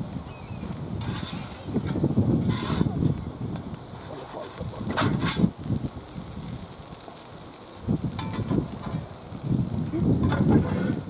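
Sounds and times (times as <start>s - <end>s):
wind gusting on microphone: 0.0s - 11.0s
metal spatula clinking on grill: 8.2s - 9.0s, 10.2s - 11.0s.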